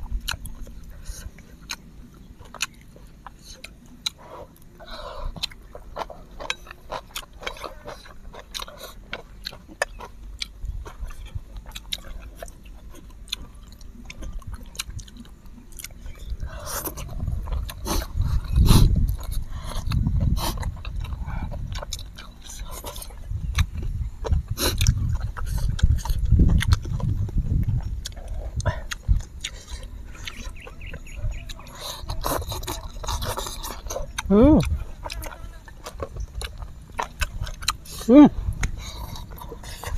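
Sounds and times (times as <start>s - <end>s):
chewing and slurping noodles: 0.0s - 39.9s
low rumble: 13.9s - 39.9s.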